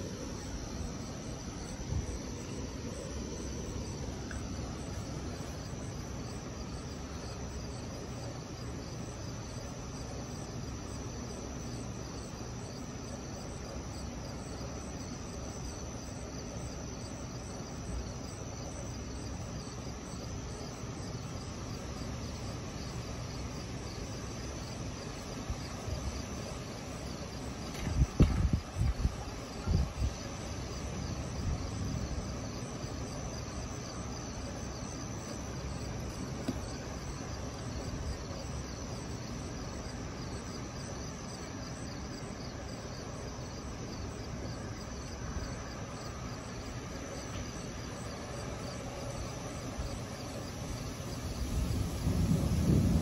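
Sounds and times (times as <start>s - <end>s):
low background noise: 0.0s - 53.0s
night insects chirping: 0.0s - 53.0s.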